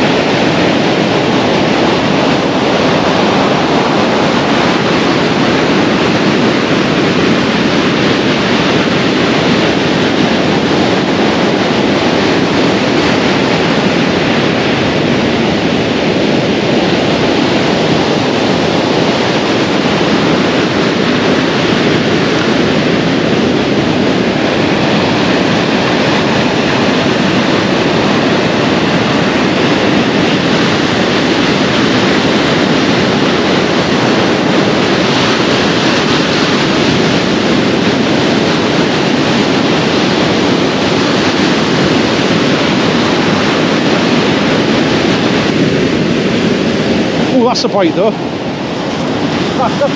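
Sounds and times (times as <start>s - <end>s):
waves breaking on beach: 0.0s - 49.9s
wind on microphone: 0.0s - 49.9s.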